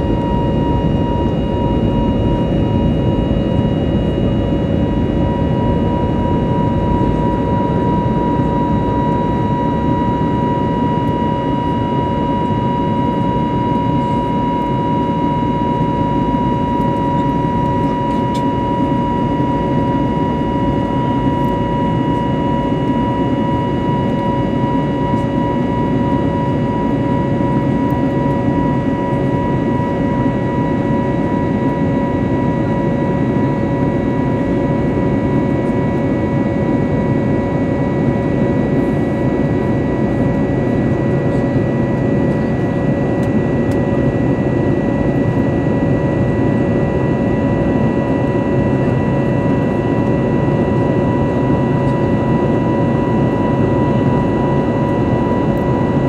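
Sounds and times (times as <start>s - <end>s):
airliner cabin engine rush: 0.0s - 56.0s
steady whining tones: 0.0s - 56.0s.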